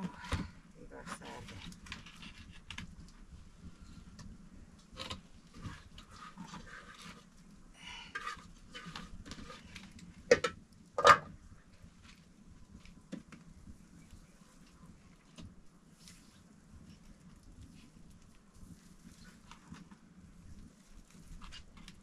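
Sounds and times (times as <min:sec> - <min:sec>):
firewood scraping and knocking: 0:00.0 - 0:07.5, 0:08.1 - 0:15.6
metal bowl being handled: 0:08.2 - 0:11.4.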